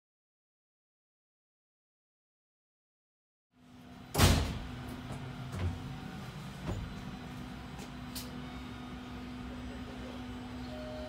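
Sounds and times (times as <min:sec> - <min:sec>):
electric train hum: 0:03.6 - 0:11.0.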